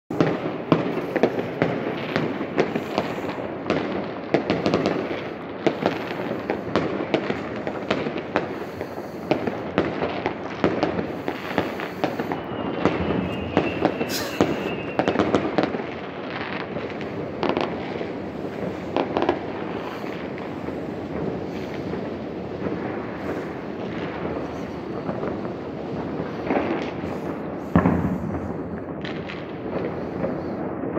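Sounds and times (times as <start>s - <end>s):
distant fireworks bangs and pops: 0.1s - 30.9s
thin firework whistle: 11.2s - 16.0s.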